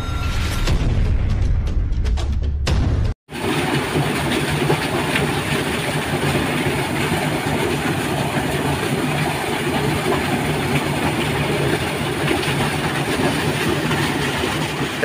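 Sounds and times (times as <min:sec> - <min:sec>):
water gushing from pipe: 0:03.3 - 0:15.0.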